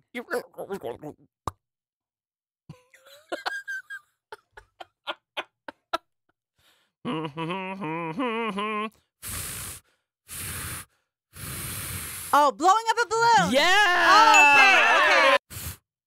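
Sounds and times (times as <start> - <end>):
breathy blows: 9.2 - 12.4.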